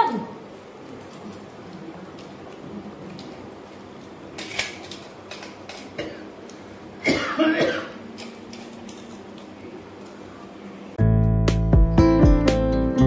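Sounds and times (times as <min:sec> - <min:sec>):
person coughing: 0:06.0 - 0:06.3, 0:07.0 - 0:08.0.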